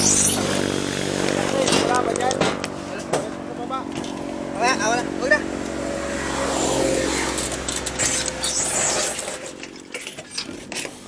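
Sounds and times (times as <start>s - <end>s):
engine running: 0.0s - 11.0s.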